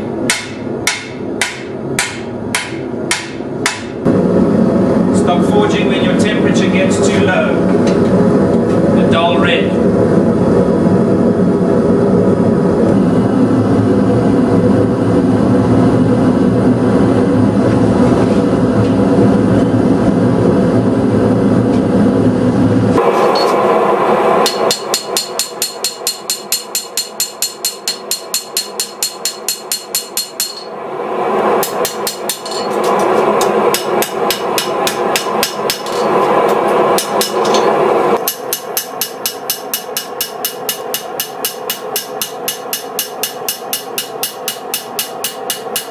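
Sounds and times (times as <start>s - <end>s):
hammer striking blade on anvil: 0.0s - 4.0s, 24.4s - 30.7s, 31.6s - 45.9s
gas forge burner running: 0.0s - 45.9s.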